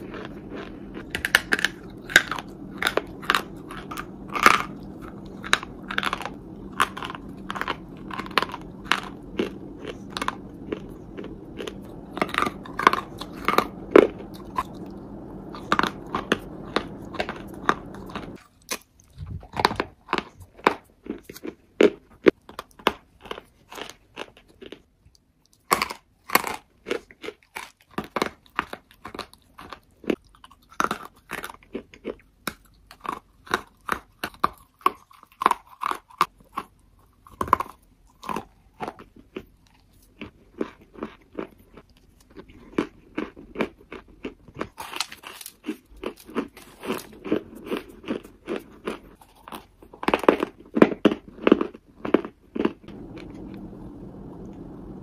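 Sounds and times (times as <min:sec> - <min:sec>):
person chewing crunchy food: 0:00.0 - 0:53.7.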